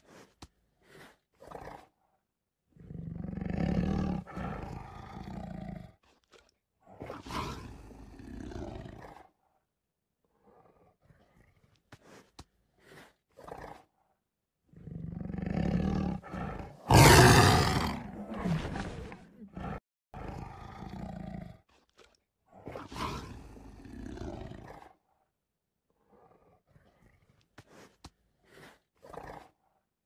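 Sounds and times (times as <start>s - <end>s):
tiger roaring and growling: 2.7s - 5.9s, 6.9s - 9.3s, 14.7s - 21.6s, 22.5s - 25.0s.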